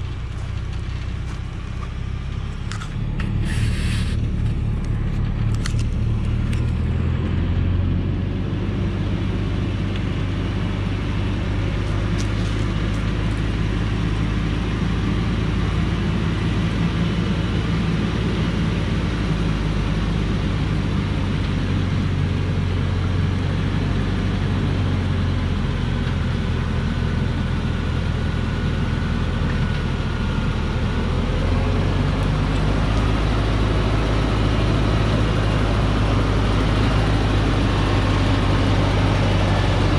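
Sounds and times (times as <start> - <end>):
diesel truck engine running: 0.0 - 39.9.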